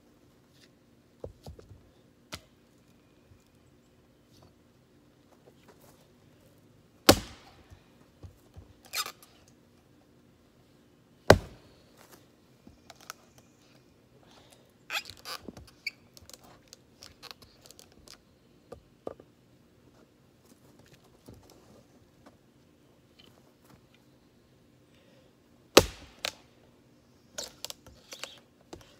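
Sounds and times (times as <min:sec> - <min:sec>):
axe chopping into log: 0:07.1 - 0:07.6, 0:11.3 - 0:11.6, 0:25.8 - 0:26.4.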